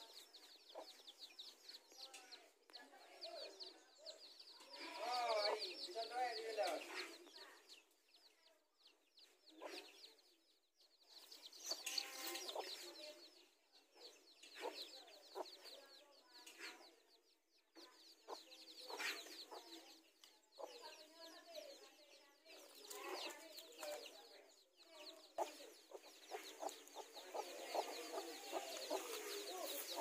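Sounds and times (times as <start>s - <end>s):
chicks peeping: 0.0s - 30.0s
hen clucking: 25.2s - 30.0s.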